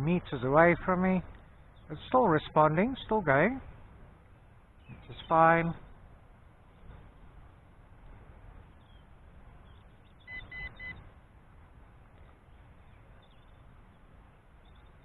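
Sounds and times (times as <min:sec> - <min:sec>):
high-pitched controller beeps: 0:10.2 - 0:11.0.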